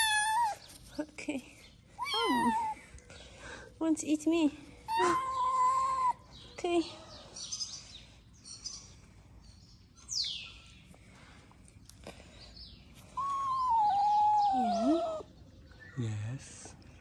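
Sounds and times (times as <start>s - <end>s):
kitten crying: 0.0s - 0.6s, 2.0s - 2.8s, 4.9s - 6.2s, 13.2s - 15.2s
kitten high chirp: 0.0s - 0.6s, 2.0s - 2.8s, 4.9s - 6.2s, 13.2s - 15.2s.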